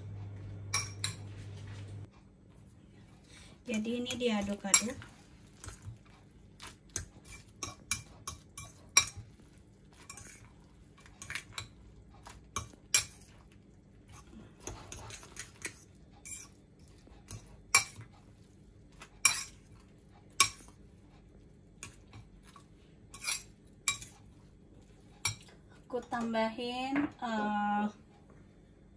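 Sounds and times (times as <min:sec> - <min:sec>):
metal fork scraping a bowl: 0:06.6 - 0:09.3, 0:09.9 - 0:13.3, 0:14.1 - 0:18.1, 0:19.2 - 0:19.6, 0:23.1 - 0:24.2.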